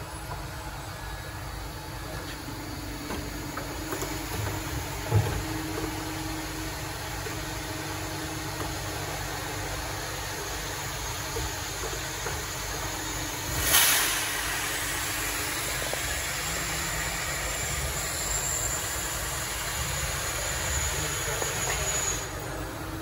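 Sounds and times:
steady machine noise: 0.0s - 23.0s
loud hiss: 12.1s - 22.6s.

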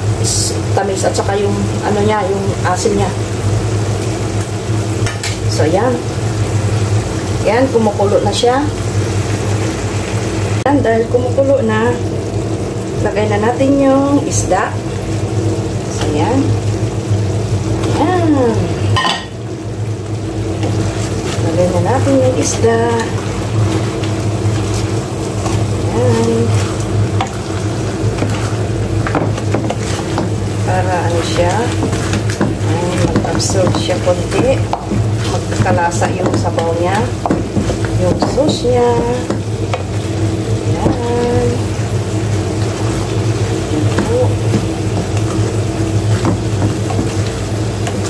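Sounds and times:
sauce boiling and sizzling in a pan: 0.0s - 48.0s
steady low hum: 0.0s - 48.0s
wooden spatula knocking on a pan: 29.0s - 30.4s, 31.4s - 39.9s, 43.8s - 45.2s, 46.1s - 47.3s.

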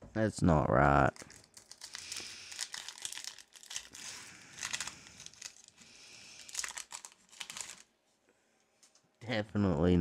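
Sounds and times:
foil wrapper crinkling: 1.1s - 7.9s.

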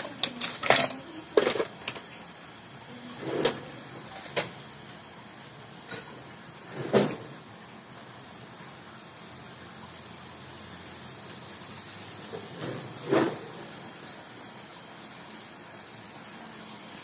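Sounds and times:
tools clicking and knocking: 0.0s - 2.1s.

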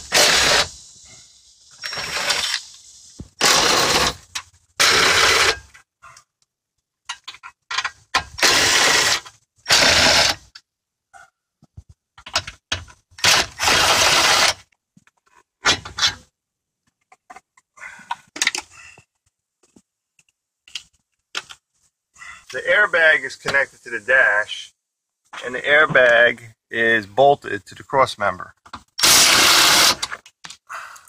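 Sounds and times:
cordless drill spinning: 0.0s - 0.8s, 1.8s - 2.7s, 3.4s - 4.2s, 8.4s - 10.4s, 13.2s - 14.6s, 29.0s - 30.2s.

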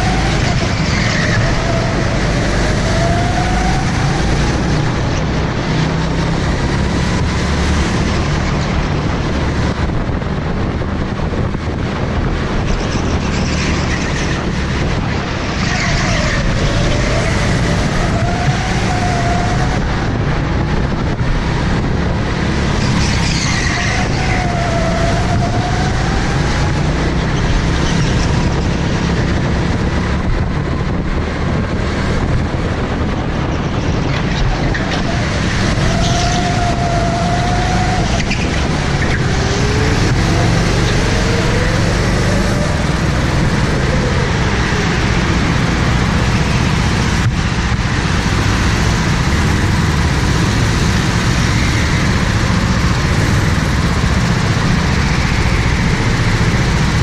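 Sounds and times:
go-kart engine running hard: 0.0s - 57.0s
tyre squeals: 22.8s - 25.6s.

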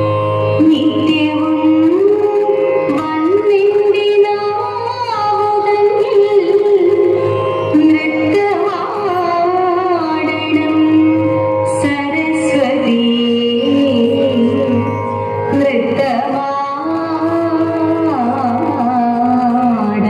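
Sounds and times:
woman singing: 0.0s - 20.0s.

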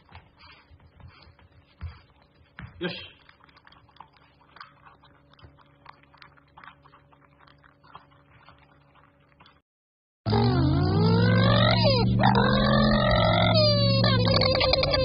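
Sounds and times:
dog crunching dry kibble: 3.2s - 9.6s.

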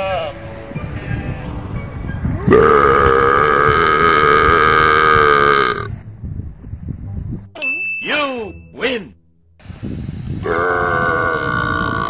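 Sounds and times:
person burping: 2.4s - 5.9s, 10.4s - 12.0s.

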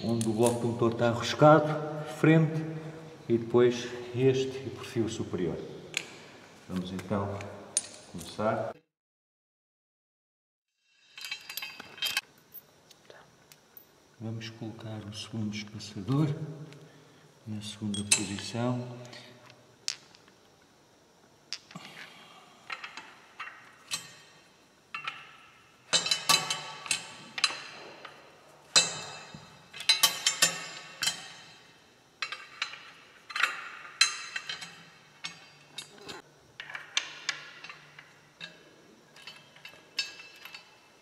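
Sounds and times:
metal parts clinking: 11.1s - 12.7s, 22.7s - 41.0s.

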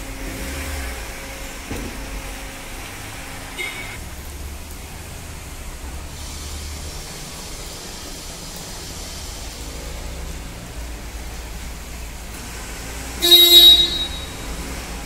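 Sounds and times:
car engine rumble: 0.0s - 15.0s
steady hiss: 0.0s - 15.0s.

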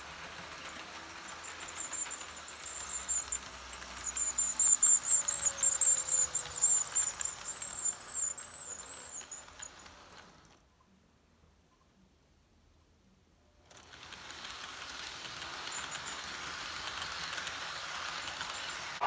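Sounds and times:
thin high squeal: 0.0s - 10.5s, 14.4s - 19.0s
model train rolling rumble: 0.0s - 10.6s, 13.7s - 19.0s.

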